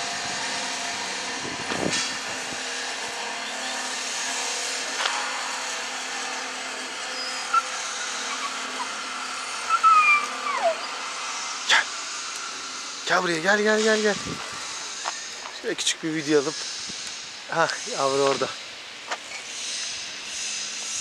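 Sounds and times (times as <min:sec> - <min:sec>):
steady mechanical hum: 0:00.0 - 0:21.0
high squeaky calls: 0:07.0 - 0:11.6.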